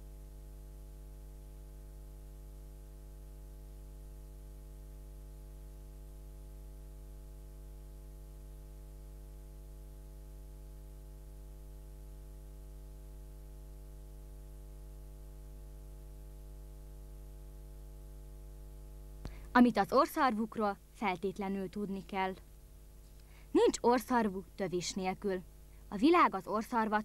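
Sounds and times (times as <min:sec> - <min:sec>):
buzzy electrical mains hum: 0:00.0 - 0:27.0
faint hiss: 0:19.1 - 0:27.0.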